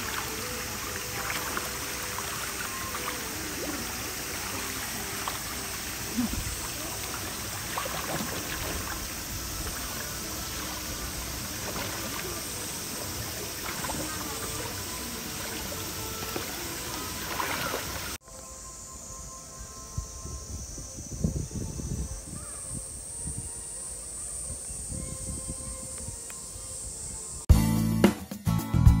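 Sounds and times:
faint voices: 0.0 - 18.2
running water rushing: 0.0 - 18.2
water splashing and trickling: 0.0 - 18.2.

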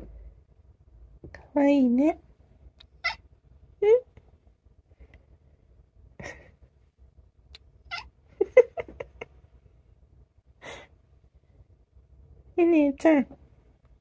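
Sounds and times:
cat chirping: 2.8 - 3.3, 7.6 - 8.2.

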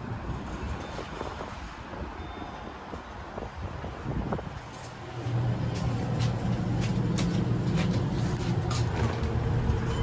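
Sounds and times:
elevator machinery humming: 4.9 - 10.0.

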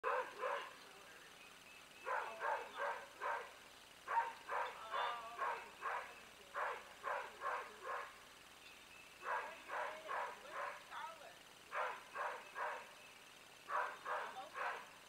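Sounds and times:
dog barking: 0.0 - 0.8, 2.0 - 8.2, 9.2 - 10.9, 11.7 - 13.0, 13.7 - 14.9.

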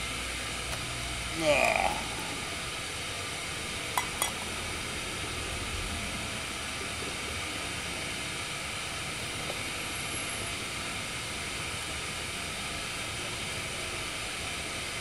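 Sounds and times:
metal pot handle clinks: 4.0 - 4.4.

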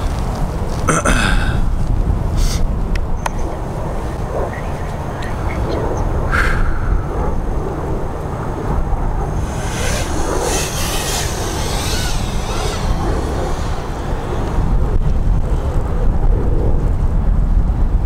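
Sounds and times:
wind buffeting microphone: 0.0 - 18.0
quadcopter motors whining: 3.2 - 16.4.

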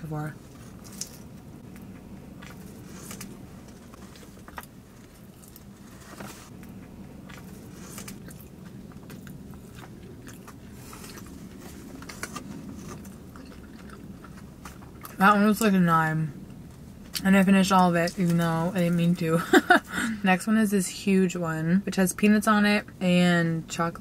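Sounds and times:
faint steady low hum: 0.0 - 24.0
chewing and mouth smacks: 0.6 - 15.2.

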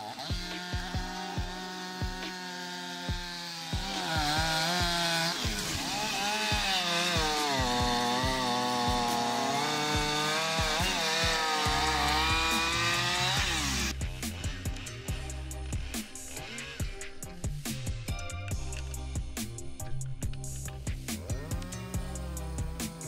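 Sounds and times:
chainsaw cutting log: 0.0 - 23.0.

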